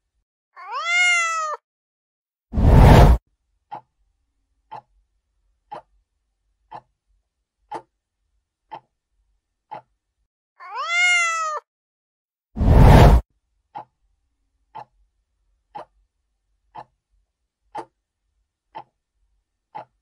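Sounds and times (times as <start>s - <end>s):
cat meowing: 0.6s - 1.6s, 10.6s - 11.7s.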